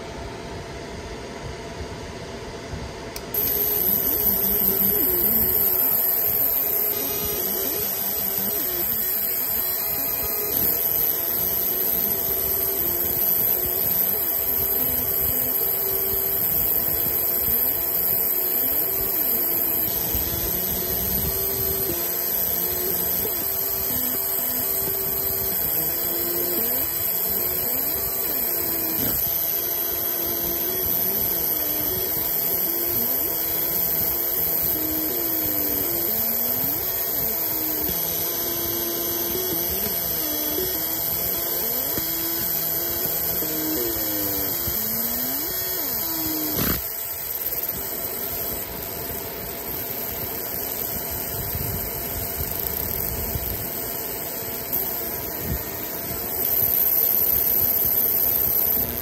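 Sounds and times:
fan hiss: 0:00.0 - 0:59.0
low rough hum: 0:02.4 - 0:50.4
click: 0:03.1 - 0:47.0
scanner mirrors whining: 0:03.1 - 0:59.0.

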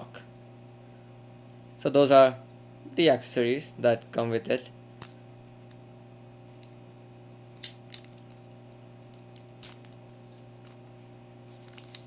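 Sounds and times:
steady low hum: 0:00.0 - 0:12.0
plastic wrapping crinkling: 0:07.6 - 0:10.8, 0:11.4 - 0:12.0.

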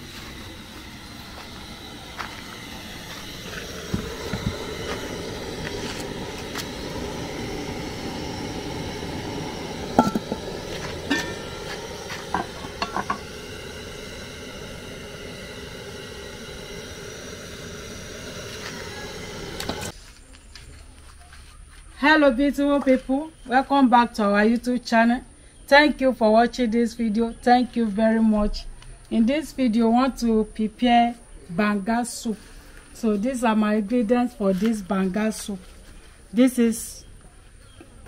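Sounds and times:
steady background noise: 0:00.0 - 0:38.0
metal pots clanking: 0:10.0 - 0:13.3.

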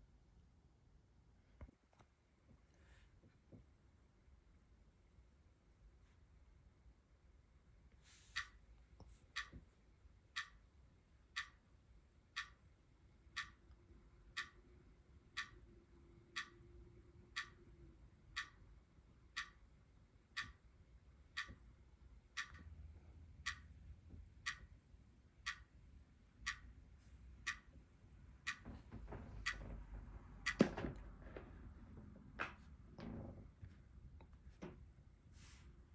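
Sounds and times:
clock ticking: 0:08.3 - 0:31.6.

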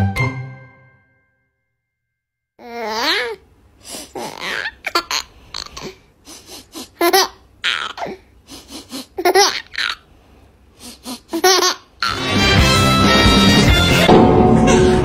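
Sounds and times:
baby laughing: 0:02.6 - 0:03.4, 0:04.1 - 0:10.1, 0:10.8 - 0:13.7
loud music: 0:12.1 - 0:15.0.

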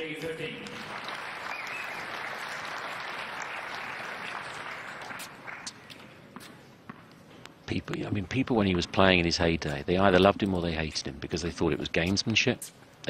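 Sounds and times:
crowd applauding: 0:00.6 - 0:05.8.

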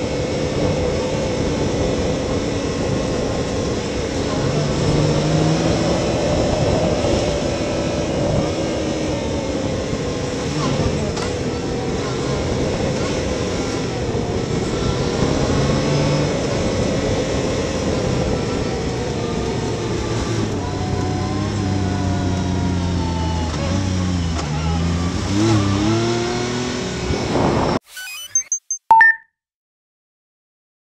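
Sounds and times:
off-road vehicle engine: 0:00.0 - 0:27.8
short electronic beeps: 0:27.8 - 0:29.3.

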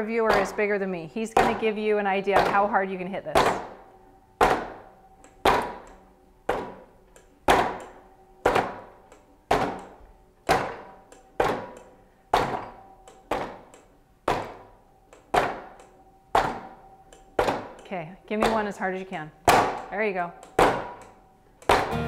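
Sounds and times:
gloved fists punching padded panel: 0:03.4 - 0:03.8, 0:04.4 - 0:05.9, 0:06.5 - 0:06.9, 0:07.5 - 0:14.7, 0:15.3 - 0:16.8, 0:17.4 - 0:17.8, 0:19.4 - 0:19.9, 0:20.6 - 0:22.0.

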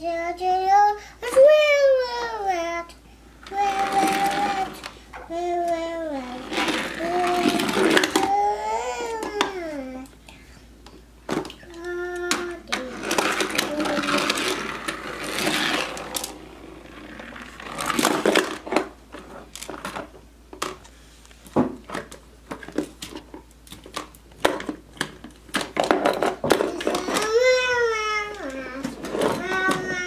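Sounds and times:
toddler's voice: 0:00.0 - 0:02.9, 0:03.5 - 0:10.1, 0:11.6 - 0:14.8, 0:26.6 - 0:30.0
toy cars rattling on plastic ramp: 0:03.4 - 0:09.6, 0:11.3 - 0:20.8, 0:21.9 - 0:30.0.

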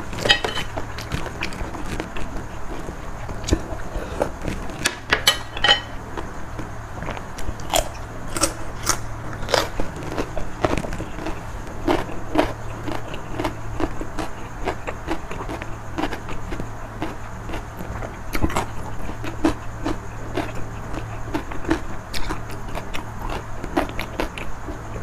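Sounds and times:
chewing with smacks: 0:00.0 - 0:05.0, 0:06.1 - 0:25.0.

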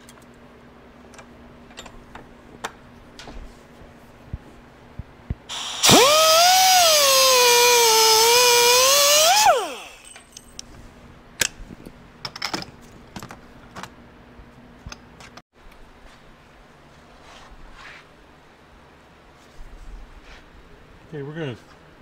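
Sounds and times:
pneumatic cut-off tool cutting steel: 0:05.5 - 0:10.2.

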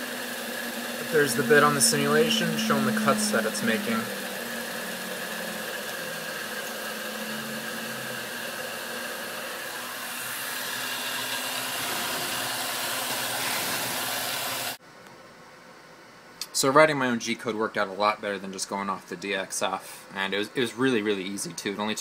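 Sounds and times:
milling machine spindle whir: 0:00.0 - 0:14.8.

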